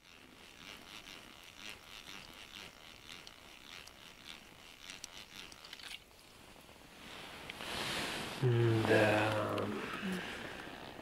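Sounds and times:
fishing reel whirring: 0.0 - 6.3.

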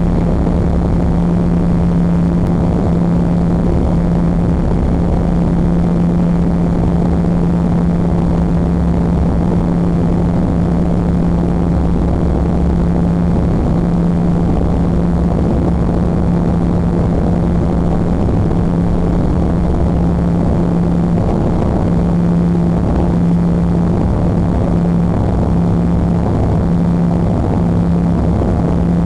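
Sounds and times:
airliner engines droning in cabin: 0.0 - 29.0.

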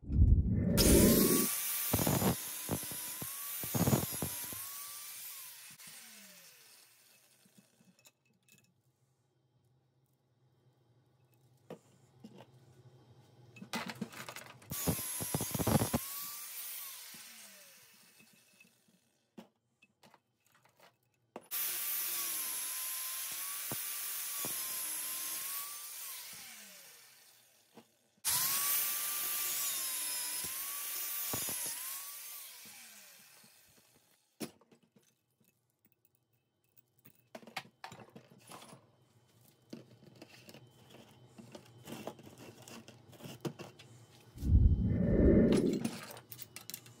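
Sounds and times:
grinder motor winding down: 0.7 - 4.4
angle grinder cutting steel: 0.8 - 7.0, 28.3 - 33.4.

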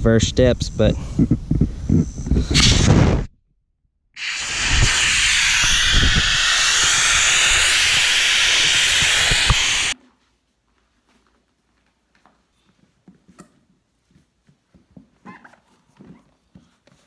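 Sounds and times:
air hissing from a valve: 2.4 - 3.0, 4.2 - 10.0.

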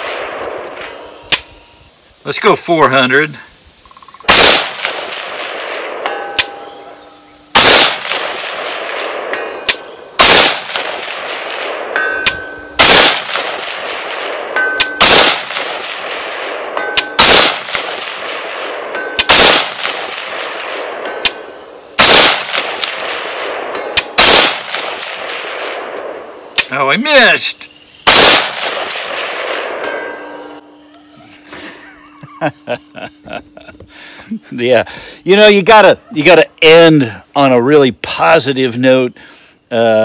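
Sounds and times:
rifle shots with echo: 0.0 - 1.3, 4.3 - 26.8, 28.0 - 30.6
faint metallic ding: 6.1 - 6.8.

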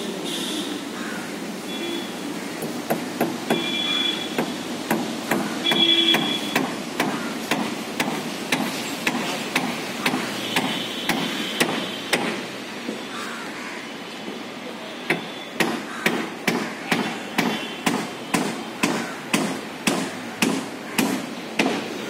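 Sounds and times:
hammering: 4.4 - 12.4, 15.1 - 21.9.

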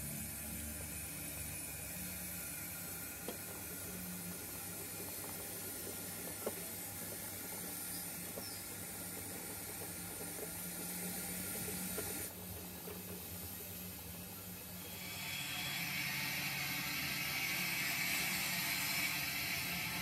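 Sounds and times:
model train hiss and hum: 0.0 - 20.0
wheels clicking: 0.5 - 14.6.

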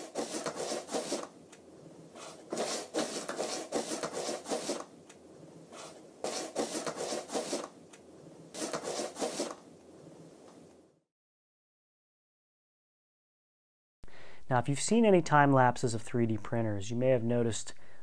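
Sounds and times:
rapid pencil scribbling: 0.0 - 1.4, 2.1 - 4.9, 5.7 - 7.8, 8.5 - 9.6.

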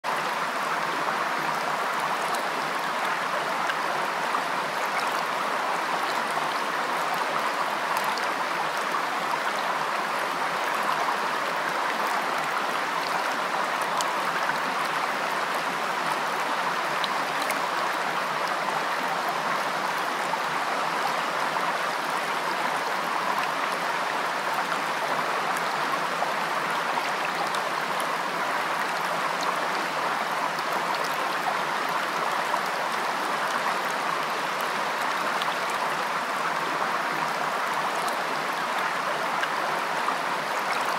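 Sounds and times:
stream running over stones: 0.1 - 40.9.

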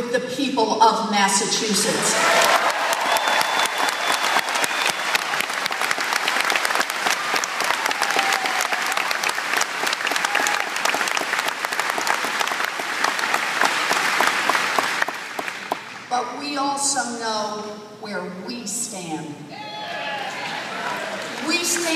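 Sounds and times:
large crowd applauding: 2.2 - 16.1, 19.8 - 21.9.

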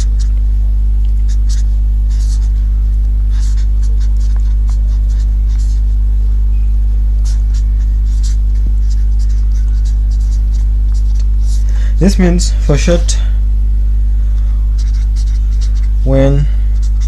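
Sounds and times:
marker pen scratching paper: 0.0 - 0.4, 1.2 - 6.0, 7.2 - 13.0, 14.8 - 17.0
loud electrical hum: 0.0 - 17.0.

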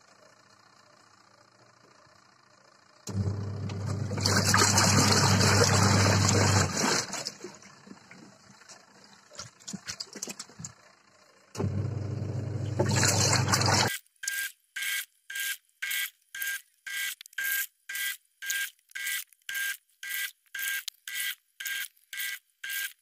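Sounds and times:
washing machine agitating: 3.1 - 10.7, 11.6 - 13.9
small water splashes: 4.2 - 10.8, 12.8 - 13.9.

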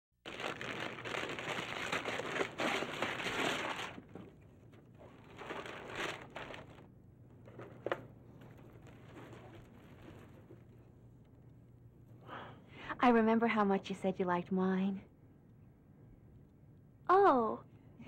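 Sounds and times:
wrapping paper tearing and crumpling: 0.2 - 6.9, 7.5 - 10.7
paper rustling: 0.3 - 11.0.

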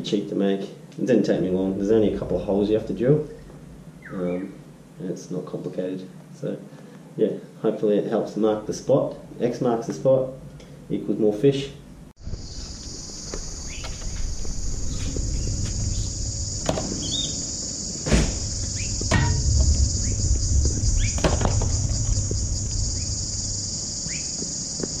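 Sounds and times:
high-pitched insect chorus: 11.7 - 25.0
low rumble: 11.7 - 25.0
sharp knocks: 18.0 - 22.4.

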